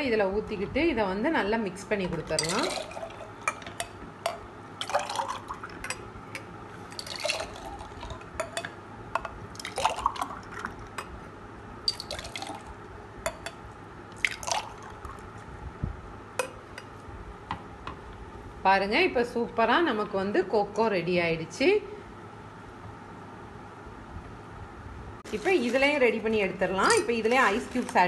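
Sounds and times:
ice cubes clinking against glass: 2.3s - 3.6s.

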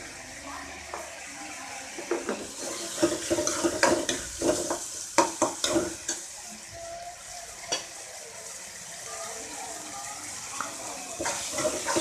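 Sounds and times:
oil sizzling: 0.0s - 12.0s
steel spoon scraping metal pan: 2.4s - 4.9s, 11.2s - 12.0s.

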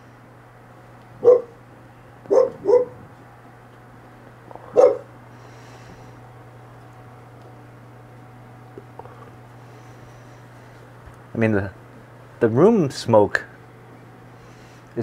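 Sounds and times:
dog barking: 1.2s - 1.6s, 2.3s - 3.0s, 4.7s - 5.1s.

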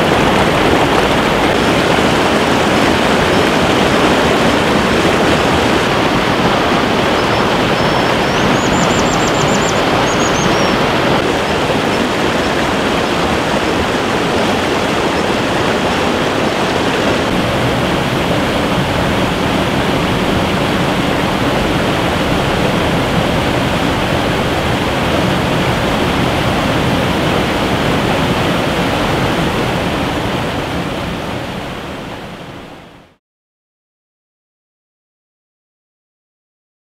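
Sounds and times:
waterfall rushing over boulders: 0.0s - 33.2s
high-pitched bird call: 7.1s - 11.0s.

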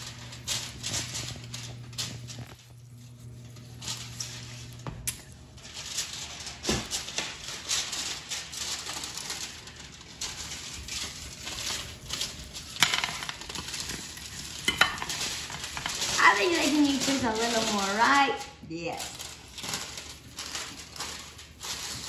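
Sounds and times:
salt granules pattering: 5.6s - 22.0s.

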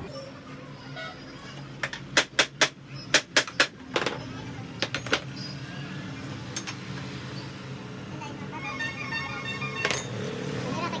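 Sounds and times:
metal tools knocking: 9.8s - 10.2s.

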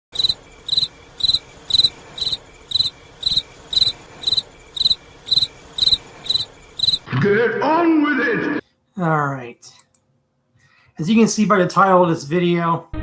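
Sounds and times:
cricket chirping: 0.1s - 7.1s.

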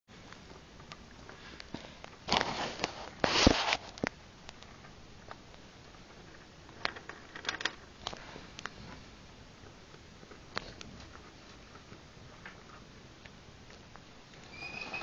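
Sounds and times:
light crackles and clicks: 0.2s - 14.5s.

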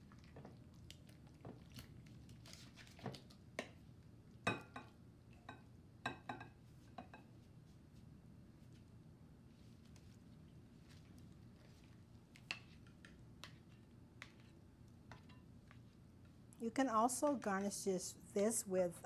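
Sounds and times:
soft squelches of salad sliding: 9.5s - 14.6s.

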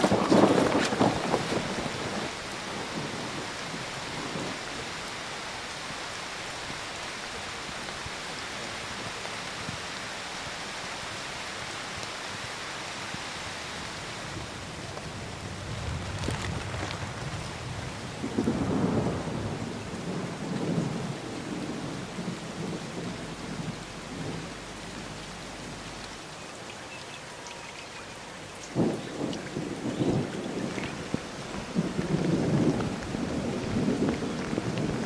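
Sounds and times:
steady rain: 0.0s - 35.0s
low rumbles: 14.3s - 26.4s.

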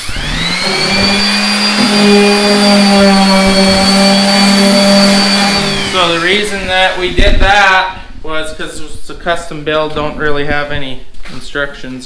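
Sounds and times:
orbital sander running: 0.0s - 7.0s.

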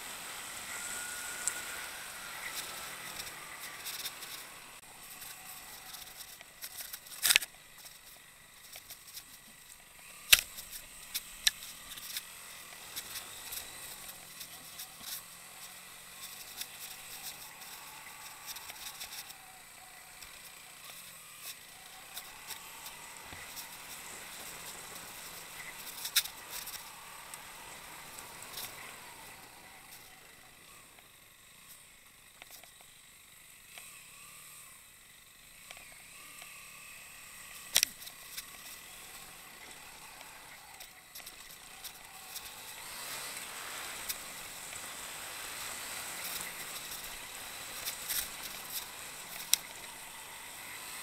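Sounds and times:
motorcycle engine at low revs: 0.0s - 51.0s.

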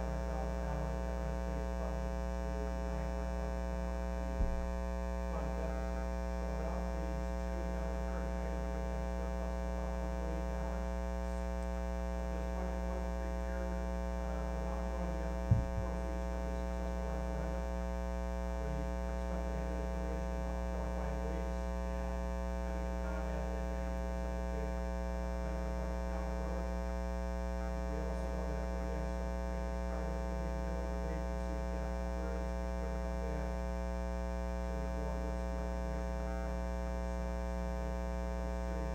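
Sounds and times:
faint indistinct voice: 0.0s - 4.7s, 5.3s - 33.7s, 34.8s - 36.6s
electrical mains hum: 0.0s - 38.9s
sharp knock: 15.5s - 15.8s.

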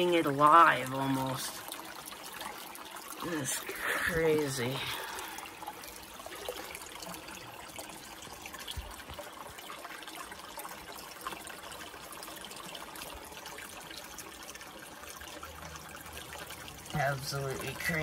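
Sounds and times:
running water trickling: 0.0s - 18.0s.

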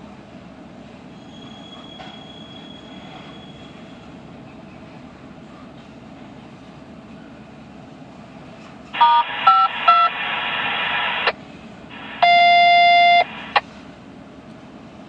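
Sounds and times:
passing train rumble: 0.0s - 10.0s, 11.2s - 15.0s
touch-tone beeps: 9.0s - 10.2s, 12.0s - 13.6s
buzzy radio tone: 9.0s - 13.6s
radio hiss: 9.0s - 13.7s.

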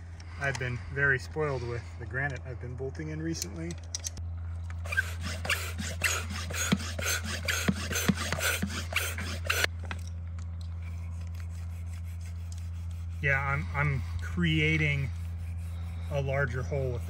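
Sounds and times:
hand pump blowing air: 4.8s - 9.7s, 10.9s - 17.0s.

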